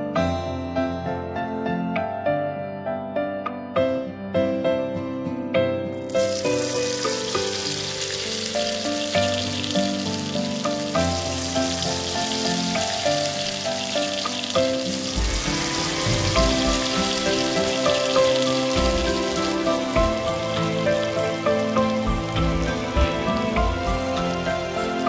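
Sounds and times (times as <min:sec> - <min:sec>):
background music: 0:00.0 - 0:25.0
fish sizzling in hot oil: 0:06.0 - 0:25.0.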